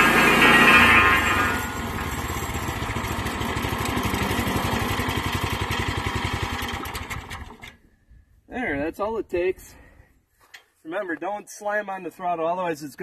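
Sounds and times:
small engine idling and stopping: 0:00.0 - 0:07.8.

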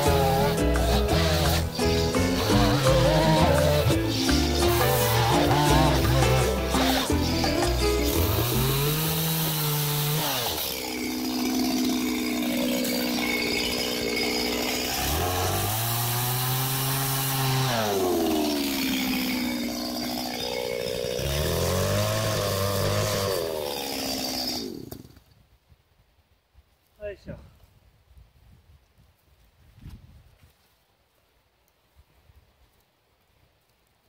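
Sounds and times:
chainsaw cutting logs: 0:00.0 - 0:25.3.

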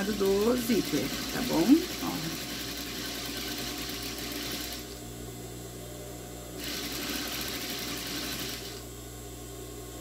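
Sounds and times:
electric sewing machine stitching: 0:00.0 - 0:05.0, 0:06.6 - 0:08.8.

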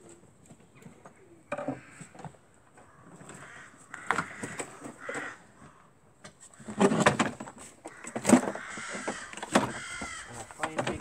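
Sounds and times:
wooden board knocking and scraping: 0:06.6 - 0:11.0.

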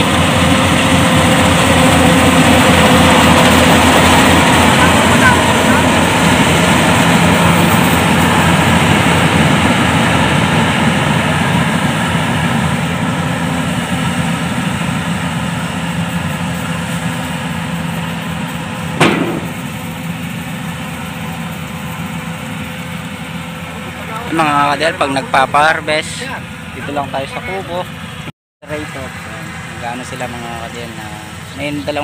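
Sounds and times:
combine harvester diesel engine: 0:00.0 - 0:32.0
sharp knock: 0:19.0 - 0:19.8.

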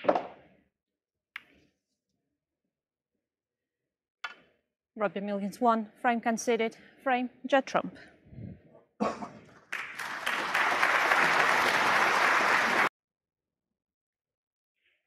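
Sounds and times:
audience applauding: 0:09.6 - 0:12.9.

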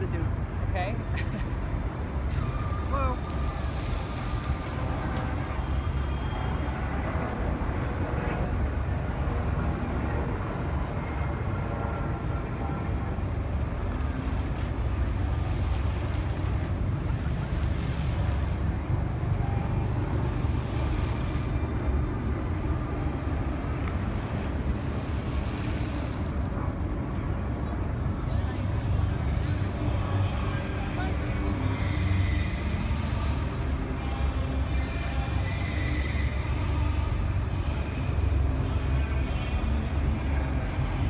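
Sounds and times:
steady outdoor rumble: 0:00.0 - 0:41.0
fountain water jets spraying: 0:01.3 - 0:08.2, 0:12.5 - 0:37.8.

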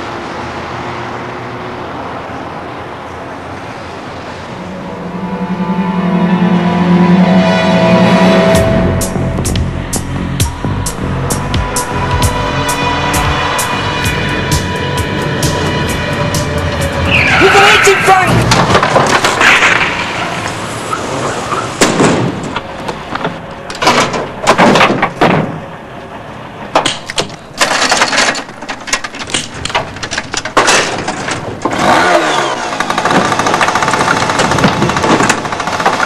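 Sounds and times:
loud bangs and crashes: 0:07.5 - 0:25.8
small engine running: 0:31.7 - 0:35.7.

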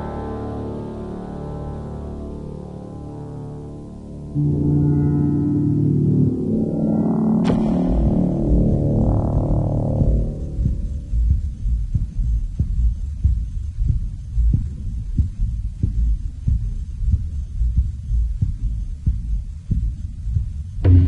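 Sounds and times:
deep hum: 0:03.0 - 0:21.0
heartbeat-like throbbing pulse: 0:04.3 - 0:21.0
sharp hit: 0:04.4 - 0:11.2.

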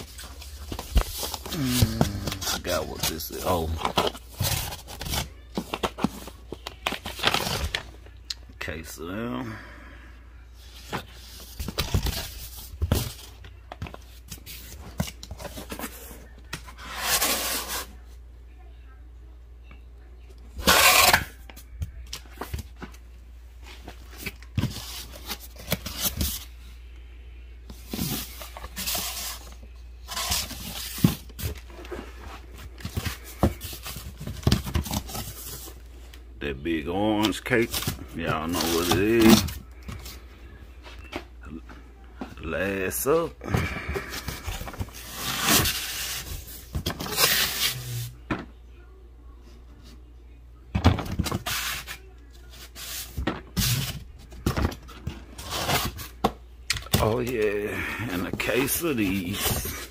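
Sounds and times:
cardboard and plastic rustling: 0:00.0 - 0:08.2, 0:10.6 - 0:18.1, 0:23.6 - 0:26.5, 0:27.7 - 0:36.2, 0:37.2 - 0:48.5, 0:50.8 - 0:59.9.

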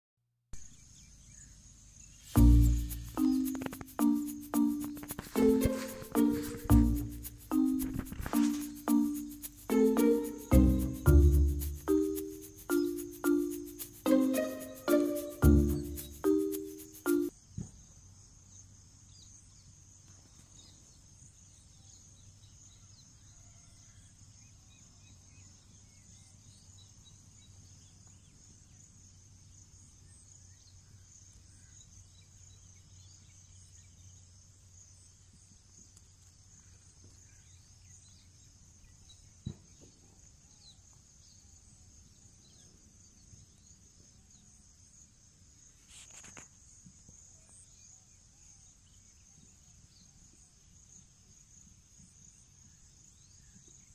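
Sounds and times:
high-pitched insect chorus: 0:01.9 - 0:17.4
short rustle: 0:02.3 - 0:15.9.

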